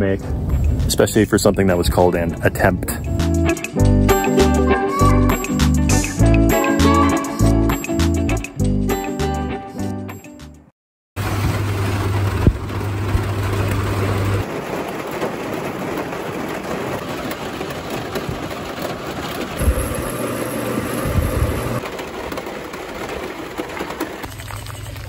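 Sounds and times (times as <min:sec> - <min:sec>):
steady rain: 0:11.2 - 0:25.0.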